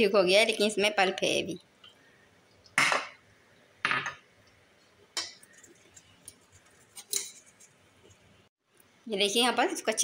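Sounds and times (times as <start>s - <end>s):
spoon scraping metal strainer: 5.2s - 7.8s.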